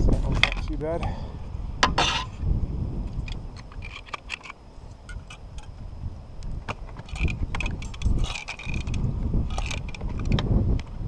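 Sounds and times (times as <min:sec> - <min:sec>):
wind rumbling on microphone: 0:00.0 - 0:11.0
caulking gun clicks and squeaks: 0:03.2 - 0:05.8, 0:06.7 - 0:10.9.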